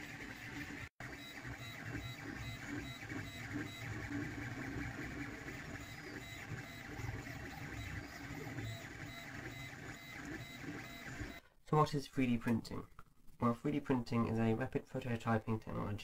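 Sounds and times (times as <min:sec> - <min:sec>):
stepper motors whirring: 0:00.0 - 0:11.4.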